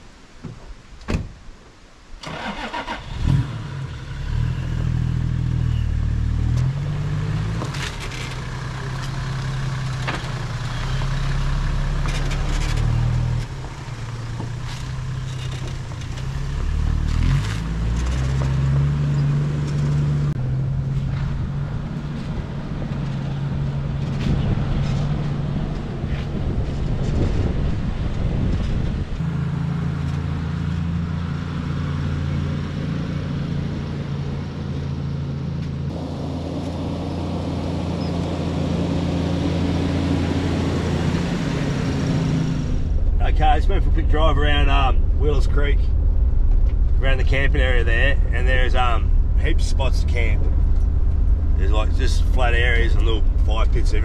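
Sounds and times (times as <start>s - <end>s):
thump: 0.4s - 1.3s
vehicle engine starting and driving: 2.2s - 54.0s.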